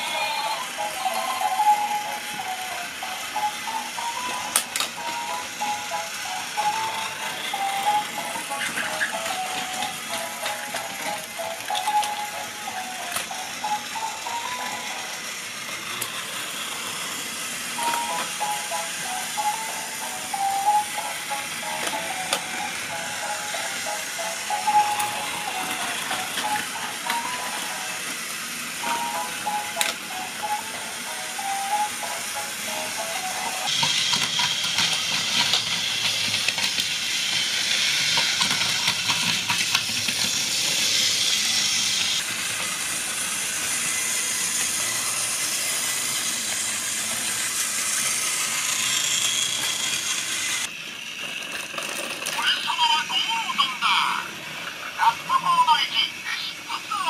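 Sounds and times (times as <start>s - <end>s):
electronic toy melody: 0.0s - 15.9s, 16.8s - 36.1s
toy train motor whirring: 0.0s - 57.0s.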